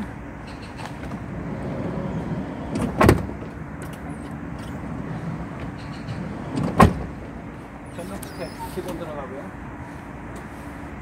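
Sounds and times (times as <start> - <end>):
sliding van door clunk: 0.6 - 7.5
van door slamming shut: 2.7 - 3.5, 6.5 - 7.2.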